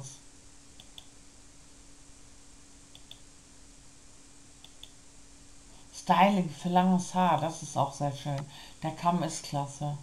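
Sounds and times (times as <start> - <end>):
computer mouse clicks: 0.8 - 1.2, 2.9 - 3.3, 4.6 - 5.0.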